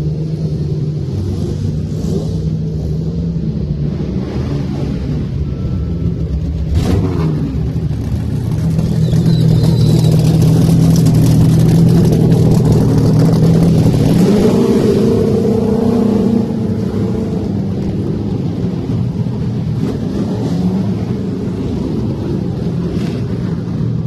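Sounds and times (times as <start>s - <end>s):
racing engine idling: 5.1s - 20.0s.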